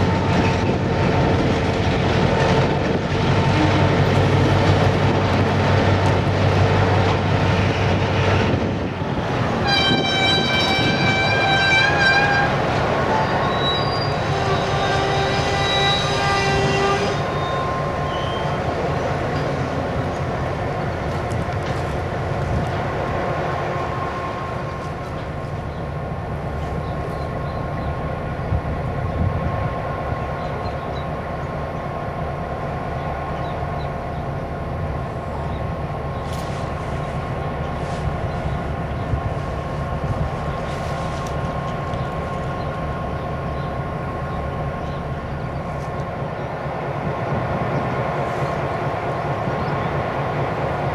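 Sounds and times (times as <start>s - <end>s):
freight train rumbling: 0.0s - 50.9s.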